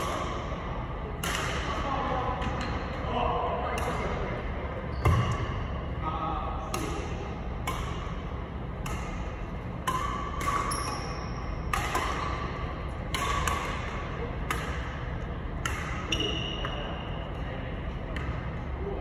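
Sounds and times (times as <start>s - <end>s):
rackets striking shuttlecock: 1.2s - 1.8s, 3.6s - 4.3s, 6.6s - 17.0s
sneaker squeaks on court floor: 4.9s - 5.4s, 10.6s - 11.5s, 16.0s - 17.1s.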